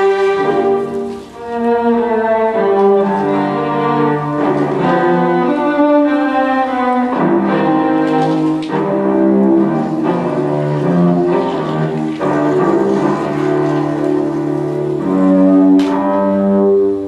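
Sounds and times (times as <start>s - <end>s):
cello and violin long notes: 0.0s - 17.0s.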